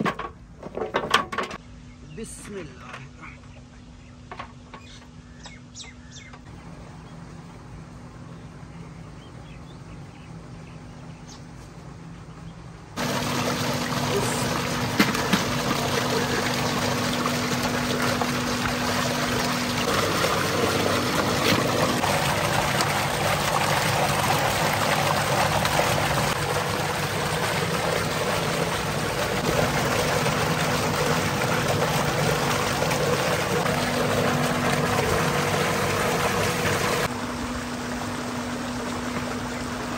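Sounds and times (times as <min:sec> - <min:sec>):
water gushing from pipe: 0:13.0 - 0:39.9
water splashing in metal tub: 0:13.0 - 0:39.9.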